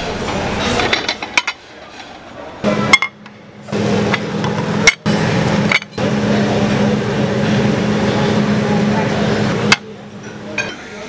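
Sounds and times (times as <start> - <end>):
room hum: 0.0 - 11.0
dishes clinking: 0.6 - 3.4, 9.7 - 11.0.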